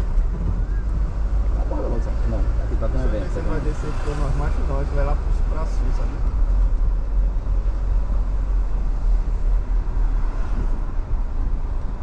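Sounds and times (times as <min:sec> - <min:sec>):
car engine and road noise: 0:00.0 - 0:12.0.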